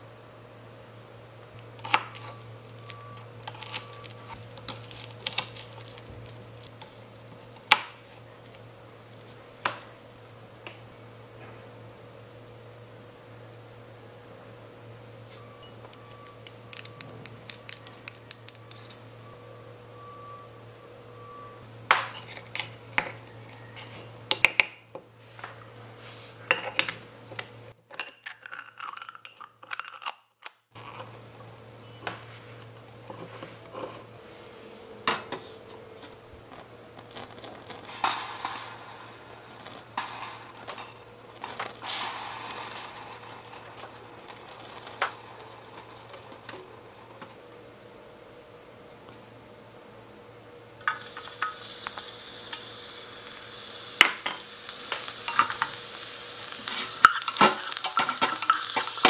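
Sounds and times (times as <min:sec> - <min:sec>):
metal utensils clinking on pot: 0:54.1 - 0:55.8, 0:56.7 - 0:59.0.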